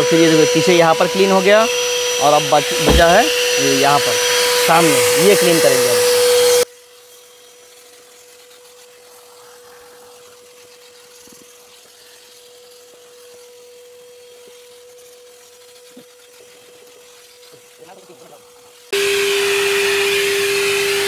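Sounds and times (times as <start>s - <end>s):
loud vacuum rush: 0.0s - 6.6s
vacuum cleaner whine: 0.0s - 6.6s, 19.0s - 21.0s.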